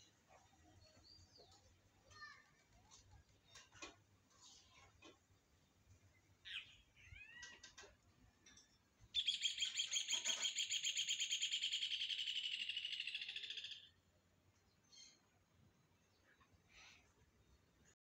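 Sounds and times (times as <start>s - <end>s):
bird chirping and trilling: 6.4s - 7.6s, 9.1s - 14.0s.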